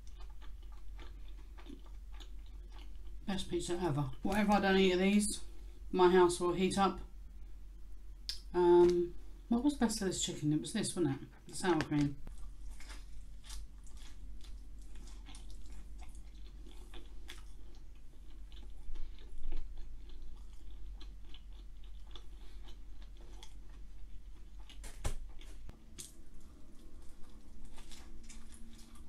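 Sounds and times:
chewing pizza: 0.0s - 3.3s, 12.3s - 29.0s
low steady hum: 0.0s - 29.0s.

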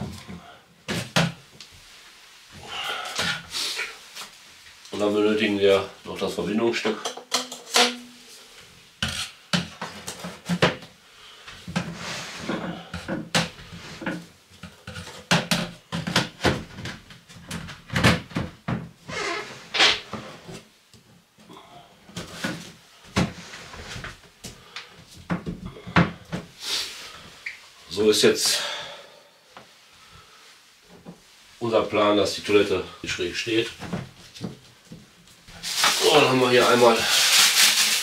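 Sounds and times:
plastic parts clacking: 7.0s - 8.0s.

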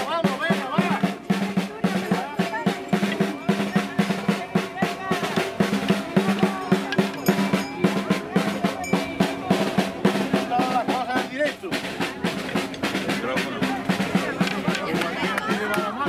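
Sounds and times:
hand drum beating: 0.0s - 16.0s
people's voices: 0.0s - 16.0s.

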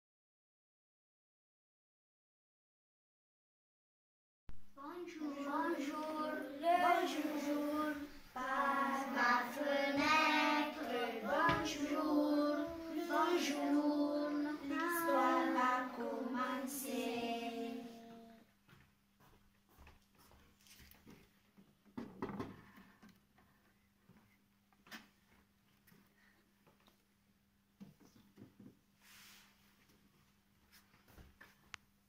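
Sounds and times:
children singing: 4.9s - 18.4s.

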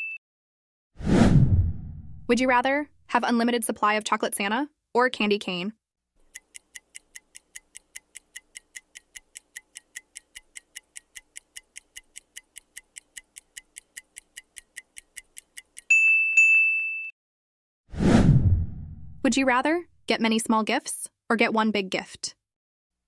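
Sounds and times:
high ringing tone: 0.0s - 0.2s
clock ticking: 6.2s - 15.9s.

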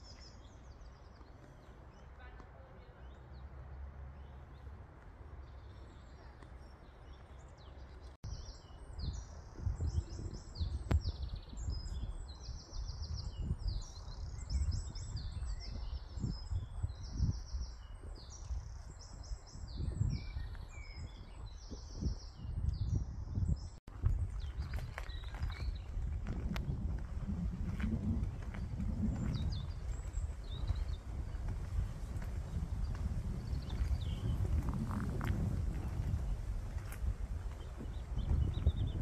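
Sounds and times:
songbirds singing: 0.0s - 39.0s
footsteps on dirt path: 23.9s - 39.0s.

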